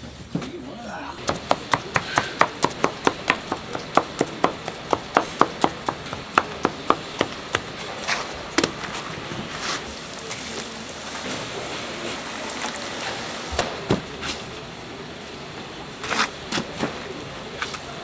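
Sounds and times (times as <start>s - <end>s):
wooden stick knocking on wooden tray: 1.2s - 7.7s.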